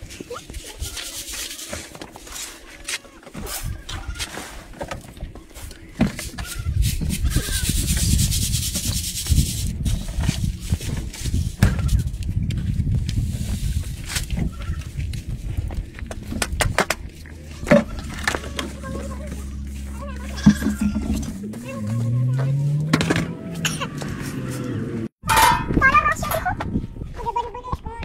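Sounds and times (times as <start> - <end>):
low rumble: 8.0 - 25.8.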